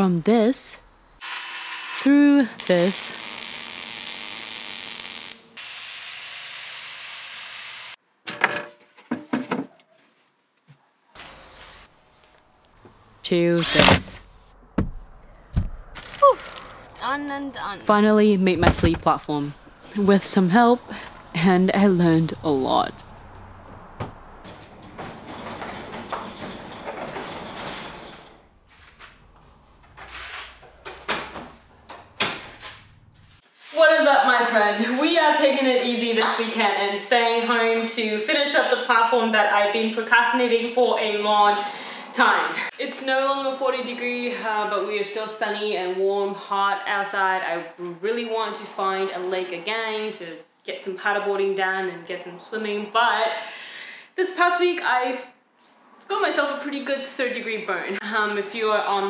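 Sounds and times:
welding arc hissing: 0:01.2 - 0:08.0, 0:11.2 - 0:12.0
sharp wooden knocks: 0:14.8 - 0:15.8
knocks and clatters of handling: 0:24.5 - 0:33.0.

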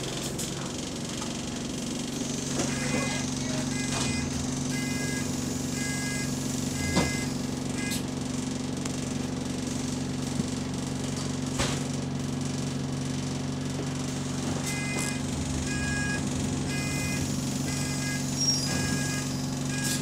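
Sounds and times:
bus engine humming: 0:00.0 - 0:11.2, 0:12.5 - 0:20.0
door warning beeper: 0:02.5 - 0:08.1, 0:14.6 - 0:20.0.

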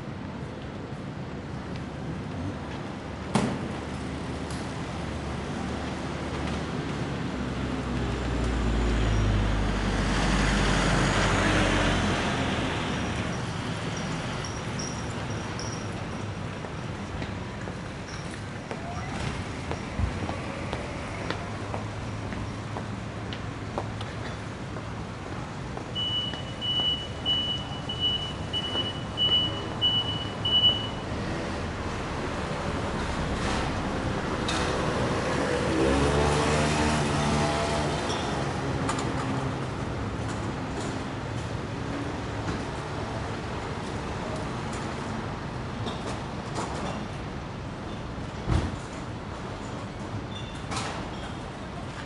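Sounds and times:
passing traffic: 0:00.0 - 0:52.0
vehicle passing by: 0:07.4 - 0:13.2, 0:31.2 - 0:39.8
reversing beeper beeps: 0:26.0 - 0:31.0.

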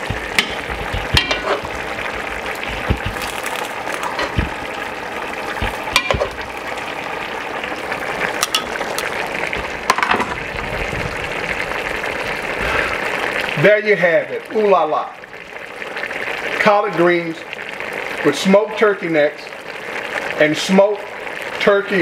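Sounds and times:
pot bubbling and sizzling: 0:00.0 - 0:22.0
metal tongs clinking on pot: 0:01.2 - 0:01.6, 0:08.4 - 0:08.8.

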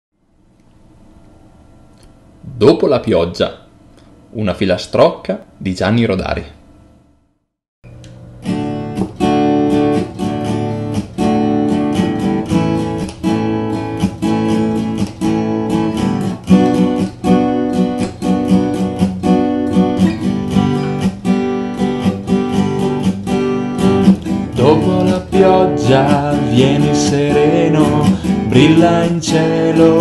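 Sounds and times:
acoustic guitar strumming: 0:07.9 - 0:30.0
person singing a rhyme: 0:24.5 - 0:30.0.

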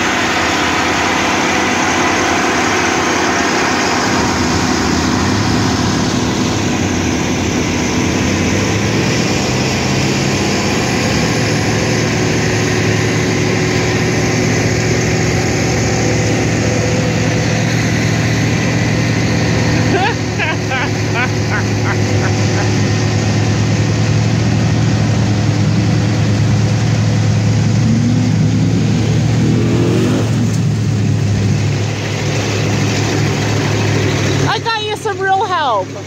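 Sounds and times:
bulldozer diesel engine running: 0:00.0 - 0:36.0.

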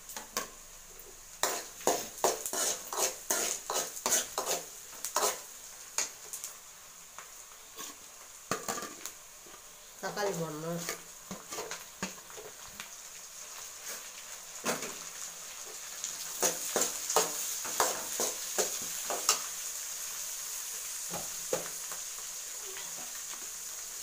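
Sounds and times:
vegetables sizzling in oil: 0:00.0 - 0:24.0
ladle scraping and knocking pan: 0:01.4 - 0:05.4.

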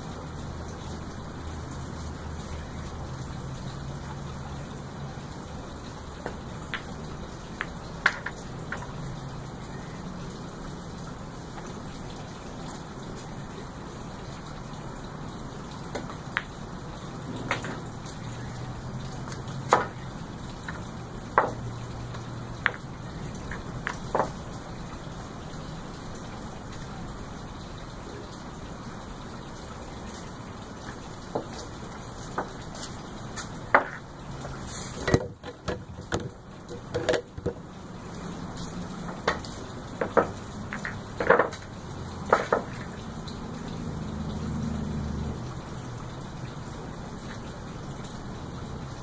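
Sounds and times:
steady hiss: 0:00.0 - 0:35.6
pool balls clacking: 0:07.6 - 0:09.0, 0:19.7 - 0:20.0, 0:20.6 - 0:21.7, 0:22.6 - 0:24.4, 0:33.7 - 0:34.1, 0:35.0 - 0:37.7, 0:39.1 - 0:42.9.

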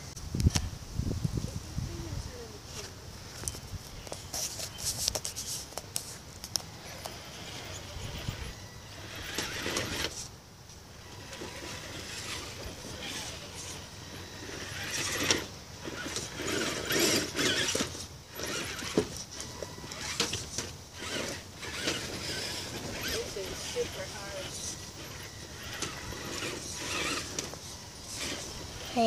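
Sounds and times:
electric motor whirring: 0:06.5 - 0:10.3, 0:10.9 - 0:29.0.

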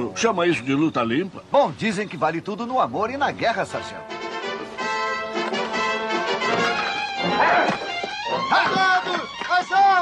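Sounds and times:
orchestral music with brass: 0:03.6 - 0:09.0.

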